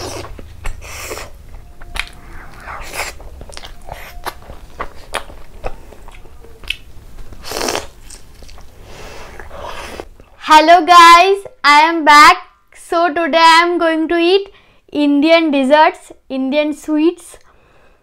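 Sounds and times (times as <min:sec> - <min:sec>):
person biting and chewing: 0:00.0 - 0:10.1
wet mouth clicks and smacks: 0:01.8 - 0:06.9.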